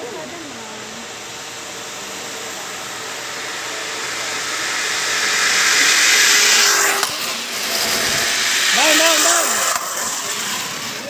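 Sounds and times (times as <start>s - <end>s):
zipline pulleys whirring on cable: 0.0s - 11.0s
sharp click: 9.7s - 10.0s.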